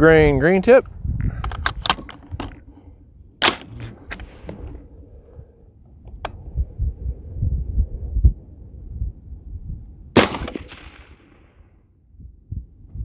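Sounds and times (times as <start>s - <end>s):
low rumbling handling noise: 0.0s - 13.0s
rifle clicks: 1.4s - 2.6s
rifle metallic clack: 1.4s - 2.6s, 3.4s - 4.6s.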